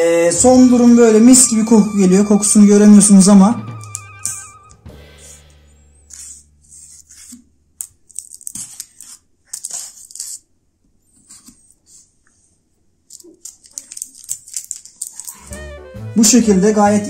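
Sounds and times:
toothpick scratching potato skins: 3.8s - 5.4s, 6.0s - 10.5s, 13.1s - 15.5s.

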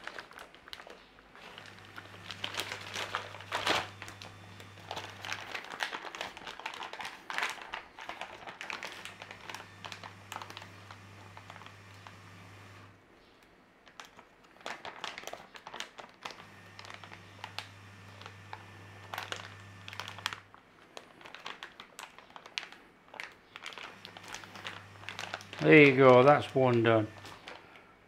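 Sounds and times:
plastic bag crinkling: 0.0s - 12.9s, 13.8s - 27.8s
zip seal clicking: 1.4s - 6.6s, 16.2s - 20.4s, 23.2s - 27.8s.

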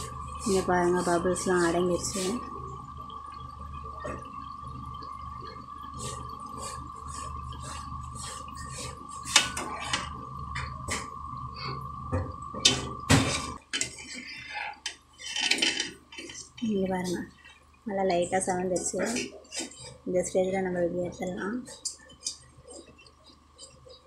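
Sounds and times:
faint hum: 0.0s - 24.0s
metal spoon scraping pan: 13.7s - 17.6s
oil sizzling and popping: 21.7s - 24.0s.

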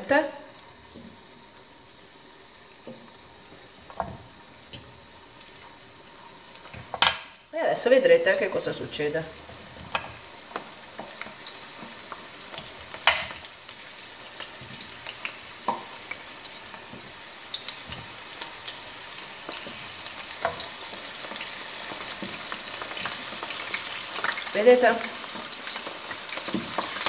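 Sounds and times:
bulbs deep-frying in hot oil: 0.0s - 27.0s.

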